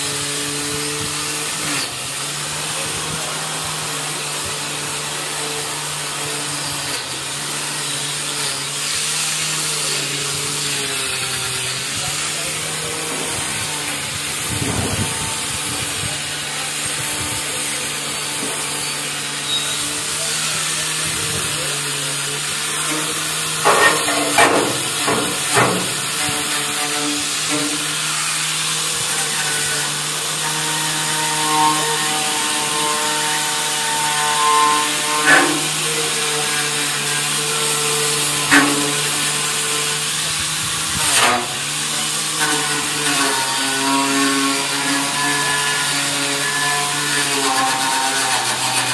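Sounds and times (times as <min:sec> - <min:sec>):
handheld power tool running: 0:00.0 - 0:48.9
knocks and scrapes against metal: 0:22.7 - 0:28.2, 0:32.8 - 0:35.8.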